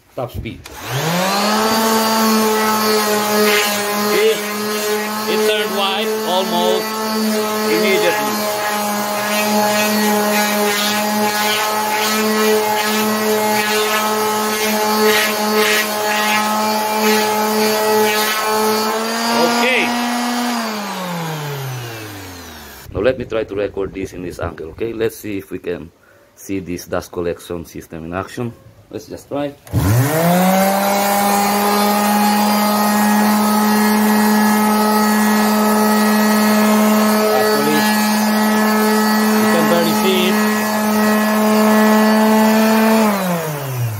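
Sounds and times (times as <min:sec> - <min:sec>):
sander motor humming: 0:00.6 - 0:22.9, 0:29.7 - 0:43.9
sandpaper rasping on wood: 0:01.1 - 0:20.7, 0:30.5 - 0:43.3.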